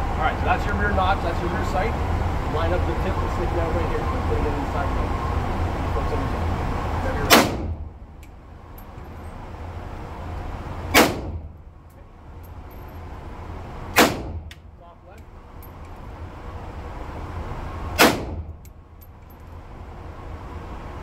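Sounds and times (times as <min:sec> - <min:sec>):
gunshots with echo: 0:07.3 - 0:07.9, 0:10.9 - 0:11.5, 0:14.0 - 0:14.5, 0:18.0 - 0:18.5.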